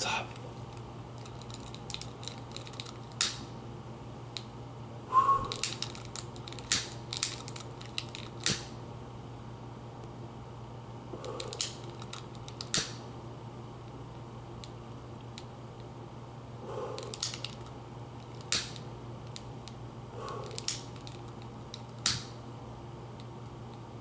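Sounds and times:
lighter flame catching: 0:06.7 - 0:07.0, 0:08.4 - 0:08.7, 0:12.7 - 0:13.0, 0:18.5 - 0:18.8, 0:22.0 - 0:22.4.

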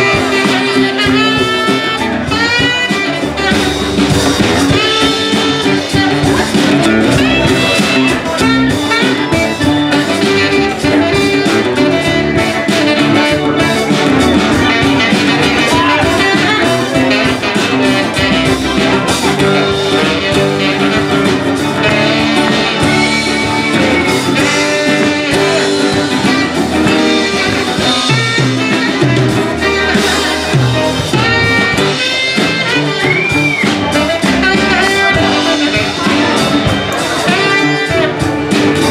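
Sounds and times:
live band playing: 0:00.0 - 0:38.9
saxophone: 0:00.0 - 0:38.9.

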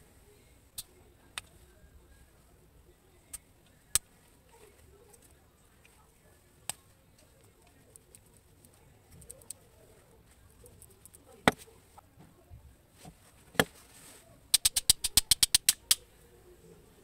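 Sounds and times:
quick run of sharp ticks: 0:14.5 - 0:16.0.

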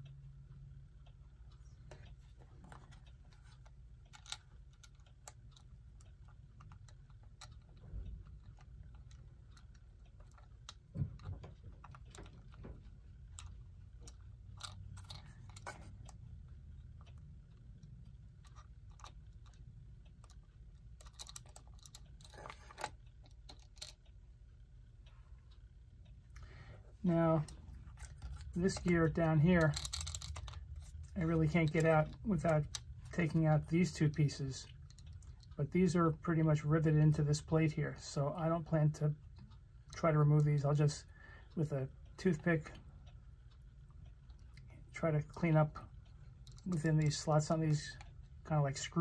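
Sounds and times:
low steady hum: 0:00.0 - 0:49.0
small metal parts clicking: 0:02.6 - 0:16.2, 0:20.2 - 0:24.1, 0:27.9 - 0:33.2, 0:46.4 - 0:48.1.

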